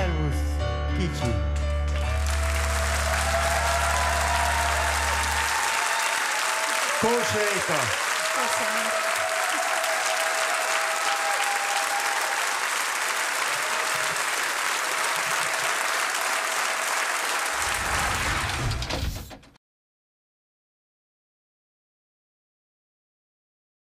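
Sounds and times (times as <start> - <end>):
audience applauding: 1.5 - 19.0.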